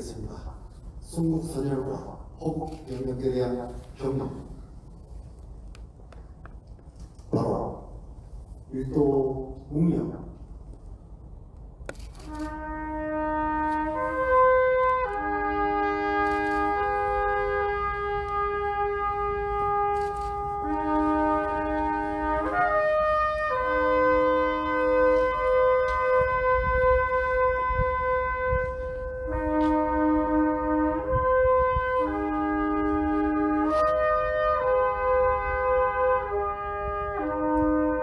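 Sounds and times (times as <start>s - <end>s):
slow solemn wind instrument tune: 11.9s - 38.0s.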